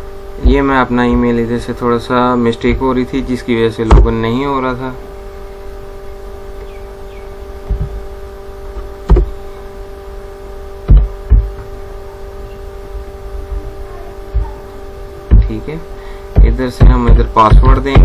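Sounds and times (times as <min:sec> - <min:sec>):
steady multi-pitch hum: 0:00.0 - 0:18.0
low thumps and knocks: 0:03.9 - 0:04.2, 0:07.6 - 0:08.0, 0:08.7 - 0:09.4, 0:10.8 - 0:11.8, 0:13.5 - 0:15.6, 0:16.3 - 0:18.0.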